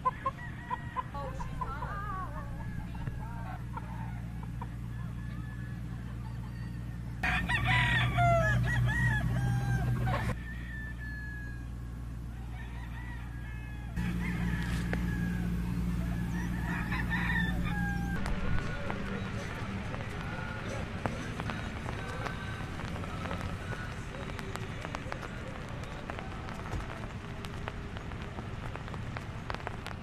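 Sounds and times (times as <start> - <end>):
chickens clucking: 0.0 - 10.4, 13.5 - 26.9
rooster crowing: 0.0 - 22.4
steady low hum: 0.0 - 30.0.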